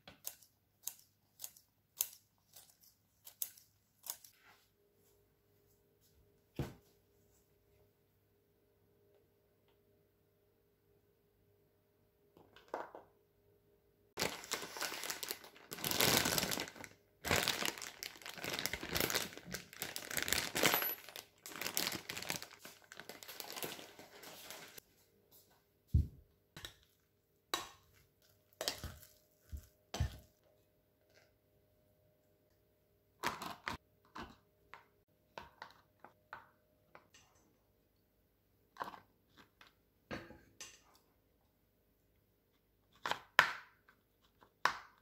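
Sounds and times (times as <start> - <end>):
plastic bags crinkling: 14.2 - 24.8.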